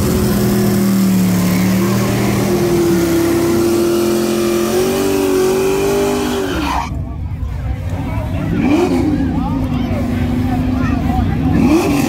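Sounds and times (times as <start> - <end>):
car engine revving: 0.0 - 7.0, 8.4 - 12.0.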